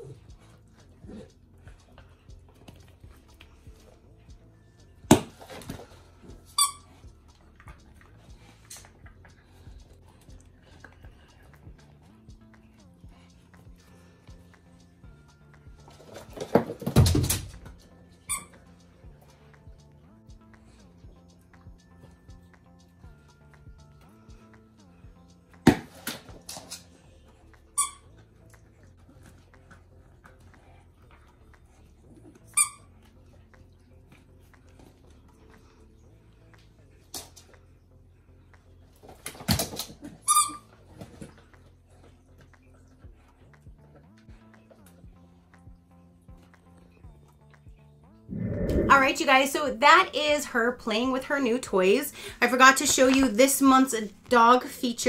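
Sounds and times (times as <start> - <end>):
squeaky dog toy squeak: 6.4 - 6.9, 18.2 - 18.6, 27.8 - 28.1, 32.5 - 32.9, 40.2 - 40.8.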